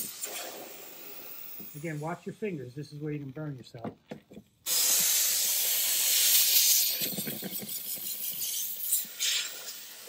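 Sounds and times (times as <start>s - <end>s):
steam cleaner hissing: 0.0s - 3.0s, 4.6s - 10.0s.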